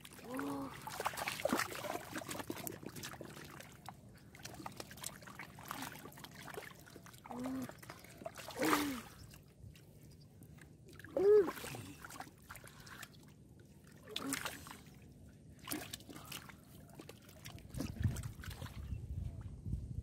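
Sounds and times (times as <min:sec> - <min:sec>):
hands splashing in muddy water: 0:00.0 - 0:09.3, 0:13.9 - 0:18.9
person grunting: 0:00.2 - 0:00.8.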